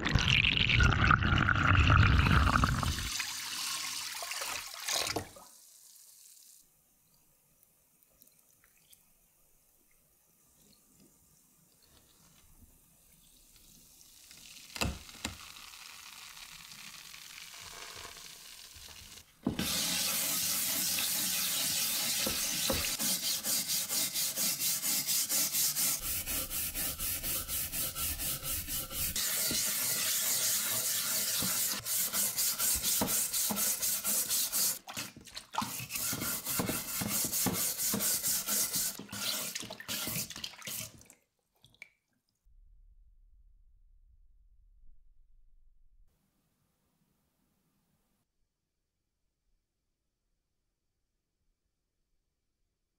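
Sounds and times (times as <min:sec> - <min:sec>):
brush scrubbing metal blade: 0:19.6 - 0:40.9.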